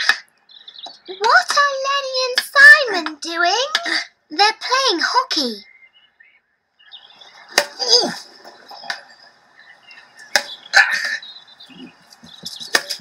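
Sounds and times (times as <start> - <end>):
outdoor ambience: 0.0 - 13.0
hockey sticks striking ball: 7.5 - 7.8, 10.2 - 11.2.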